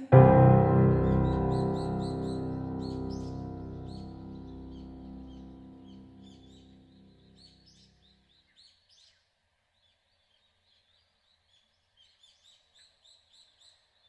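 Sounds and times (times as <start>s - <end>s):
background music: 0.0s - 6.8s
small birds chirping: 0.0s - 14.0s.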